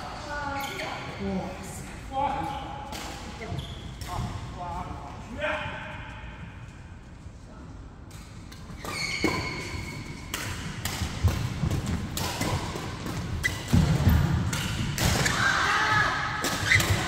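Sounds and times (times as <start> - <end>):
shoe squeaks: 0.4 - 1.1, 3.4 - 4.0, 8.8 - 10.3
rackets striking shuttlecock: 8.1 - 15.4.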